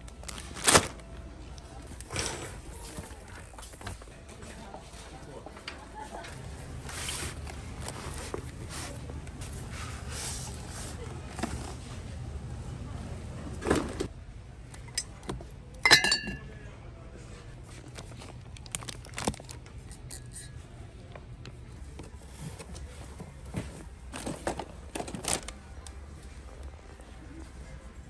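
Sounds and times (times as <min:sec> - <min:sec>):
packaging rustling: 0:00.1 - 0:01.1, 0:17.8 - 0:19.6
sharp ringing clink: 0:15.9 - 0:16.5.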